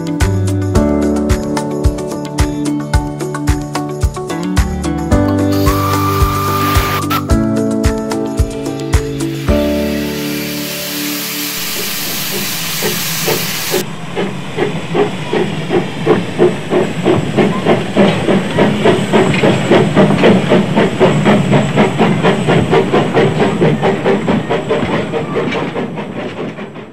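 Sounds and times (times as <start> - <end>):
steam locomotive chuffing: 5.4 - 26.9
hiss of escaping steam: 5.5 - 7.3, 8.7 - 13.8.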